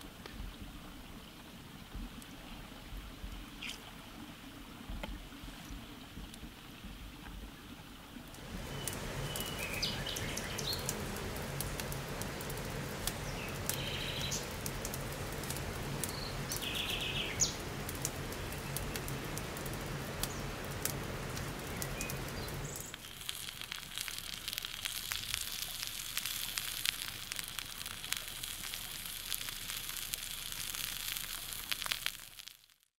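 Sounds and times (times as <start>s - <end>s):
campfire crackling: 8.2s - 32.9s
birds chirping: 8.5s - 23.0s.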